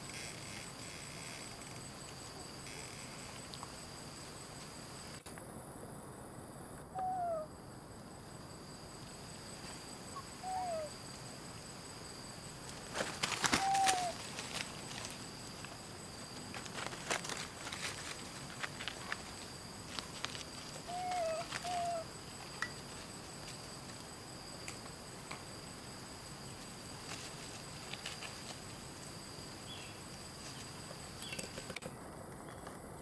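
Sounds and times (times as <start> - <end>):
insects droning: 0.0 - 33.0
monkeys rustling dry leaves: 12.8 - 15.8.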